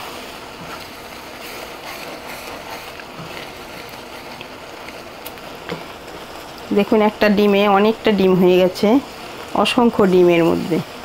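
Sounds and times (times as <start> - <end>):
wooden spatula scraping pan: 0.0 - 5.0
fish roe sizzling in a pan: 0.0 - 11.0.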